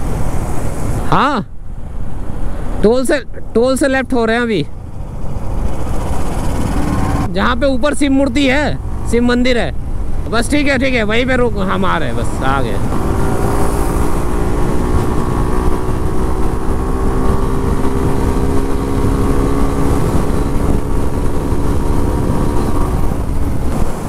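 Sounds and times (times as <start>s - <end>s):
wind noise: 0.0s - 3.4s, 8.8s - 24.0s
motorcycle engine cruising: 4.3s - 24.0s.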